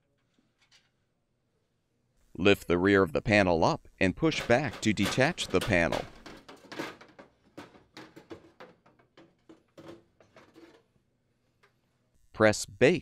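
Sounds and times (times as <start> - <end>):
metal panel clicking and scraping: 4.2 - 10.9.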